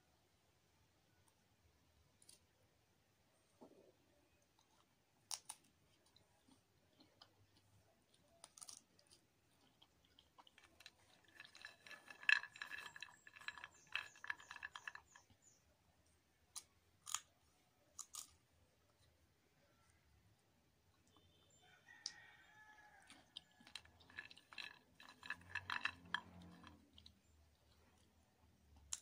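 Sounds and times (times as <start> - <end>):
peanut shells clicking: 5.2 - 15.6, 16.4 - 19.2, 21.9 - 29.0
peanuts clattering on ceramic plate: 8.4 - 15.6, 22.0 - 28.1.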